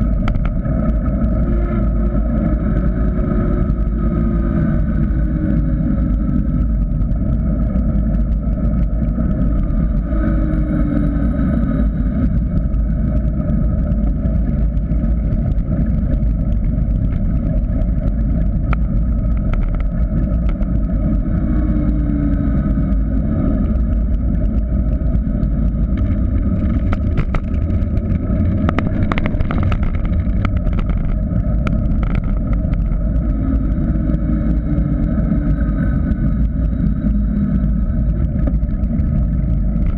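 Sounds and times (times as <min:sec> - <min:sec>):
tyre noise on road: 0:00.0 - 0:39.9
wind rushing over microphone: 0:00.0 - 0:39.9
bike clicks and rattles: 0:25.6 - 0:33.2.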